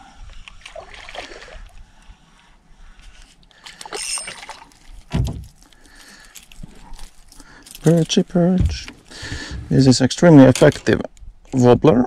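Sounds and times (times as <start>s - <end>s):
water sloshing against boat: 0.4s - 7.3s.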